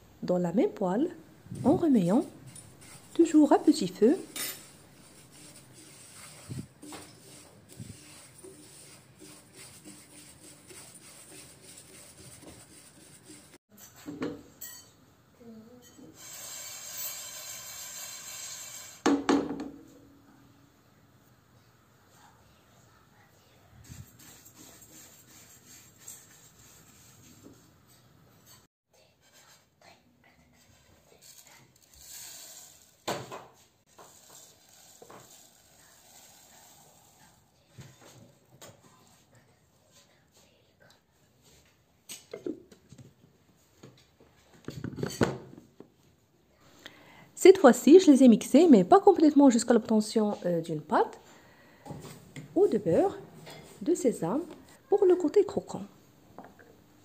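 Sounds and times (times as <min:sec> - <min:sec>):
spatula scraping: 0:01.6 - 0:14.1
seeds scraping in a frying pan: 0:02.2 - 0:12.4, 0:16.1 - 0:19.0, 0:31.1 - 0:33.1, 0:33.9 - 0:37.5
seeds pouring: 0:31.3 - 0:33.0, 0:33.9 - 0:37.3.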